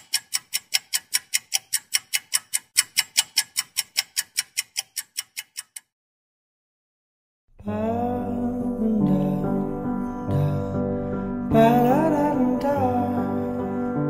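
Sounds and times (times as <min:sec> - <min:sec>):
rapid even ticking: 0:00.0 - 0:05.9.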